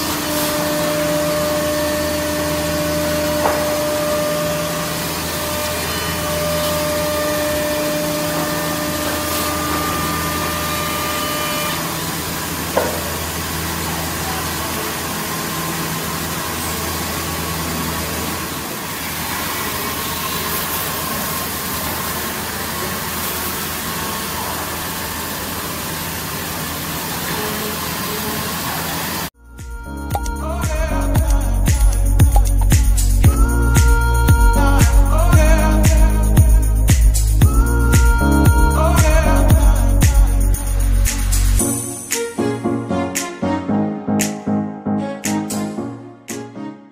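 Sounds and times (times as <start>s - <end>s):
router machining wood: 0.0s - 29.2s
machine whine: 0.0s - 42.2s.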